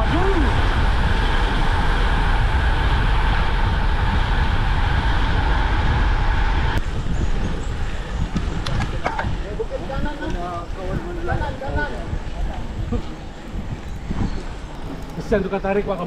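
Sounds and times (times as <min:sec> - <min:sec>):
tyres rumbling on asphalt: 0:00.0 - 0:16.0
wind over microphone: 0:00.0 - 0:16.0.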